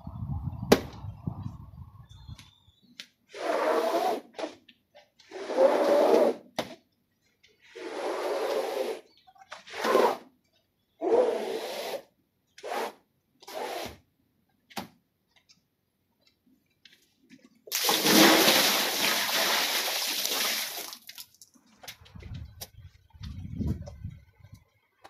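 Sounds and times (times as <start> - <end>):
water splashing from bucket: 17.7 - 21.5.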